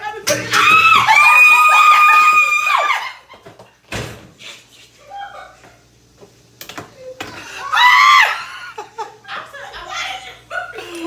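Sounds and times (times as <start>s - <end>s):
woman screaming: 0.5s - 3.2s, 7.6s - 8.6s.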